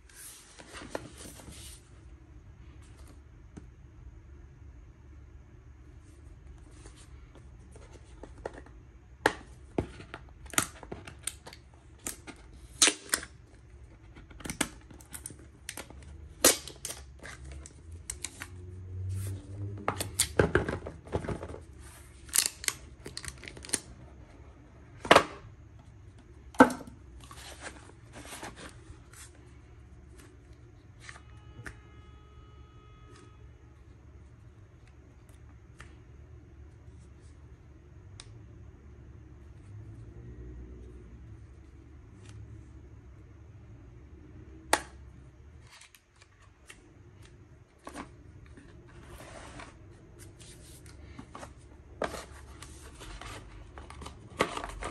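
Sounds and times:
cardboard rustling scrape: 0.1s - 1.9s, 27.2s - 29.5s, 47.9s - 54.9s.

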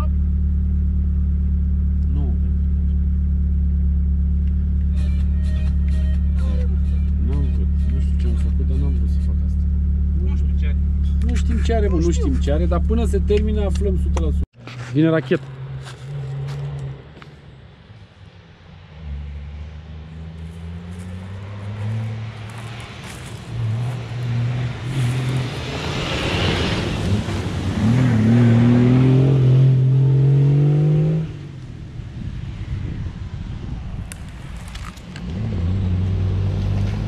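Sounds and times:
vehicle engine accelerating: 0.0s - 17.6s, 18.8s - 33.8s, 34.4s - 37.0s
tyres on dirt: 10.8s - 17.7s, 20.4s - 29.2s.

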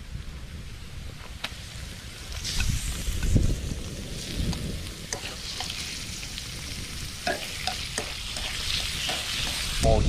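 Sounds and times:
meat sizzling in a frying pan: 1.5s - 10.0s
spatula scraping a pan: 7.3s - 9.8s.

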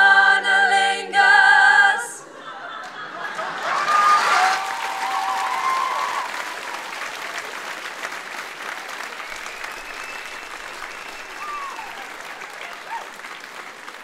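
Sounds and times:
audience applauding: 2.8s - 14.0s
audience cheering: 2.8s - 14.0s.

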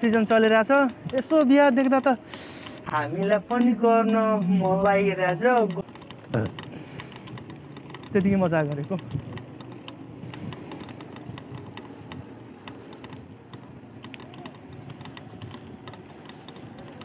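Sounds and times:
bike clicks and creaks: 0.0s - 17.0s
road hiss: 2.2s - 2.9s.

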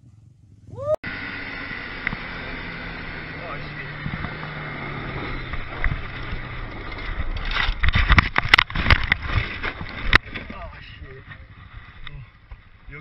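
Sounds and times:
quad bike engine running: 0.8s - 10.0s
quad bike crashing knocks and thuds: 5.4s - 10.7s.

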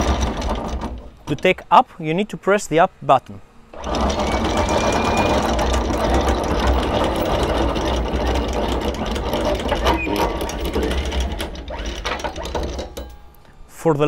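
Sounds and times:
anchor windlass motor running: 0.0s - 1.7s, 3.7s - 13.4s
anchor chain rattling clicks: 3.8s - 13.4s.

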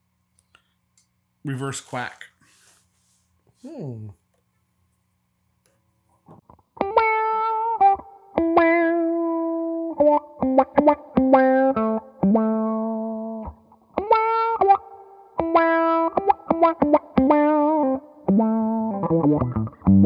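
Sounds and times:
electric guitar with envelope filter: 6.2s - 20.0s.

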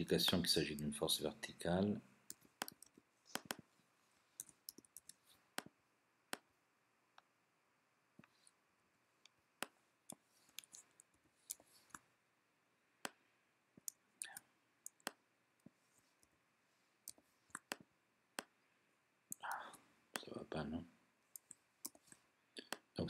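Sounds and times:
computer mouse clicks: 2.3s - 3.6s, 4.4s - 5.7s.

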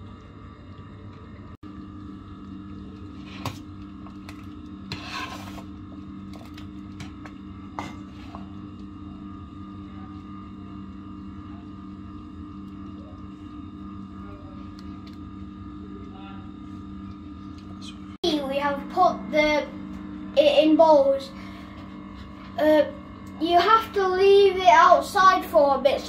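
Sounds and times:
low hum: 0.0s - 26.0s
spoon scraping pot: 4.9s - 5.7s.

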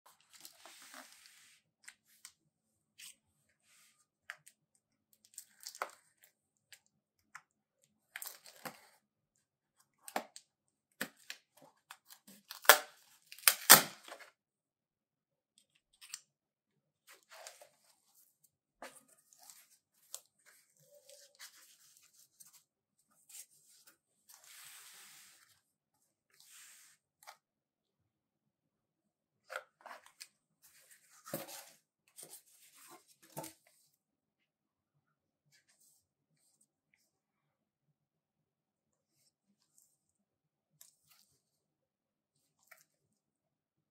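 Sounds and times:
packing tape tearing: 12.5s - 14.1s.

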